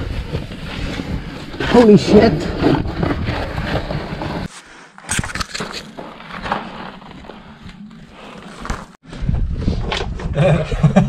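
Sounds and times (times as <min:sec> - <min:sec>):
wind rumbling on microphone: 0:09.0 - 0:11.0.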